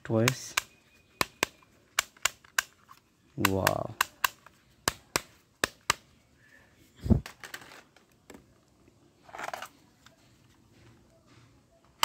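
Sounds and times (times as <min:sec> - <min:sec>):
toy pistol trigger clicking: 0:03.4 - 0:05.0
toy guns scraping on concrete: 0:09.2 - 0:09.8.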